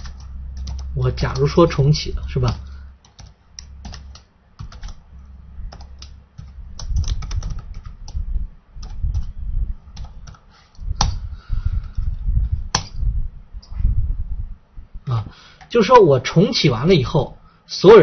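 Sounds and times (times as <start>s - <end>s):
typing on computer keyboard: 0.0s - 1.6s, 2.4s - 5.0s, 5.7s - 8.2s, 8.8s - 9.3s, 10.0s - 10.4s.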